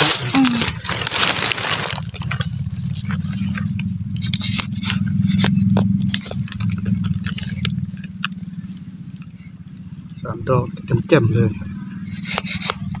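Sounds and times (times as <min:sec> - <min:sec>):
spade scraping soil and leaves: 0:00.0 - 0:07.6
low rumble: 0:00.4 - 0:12.1.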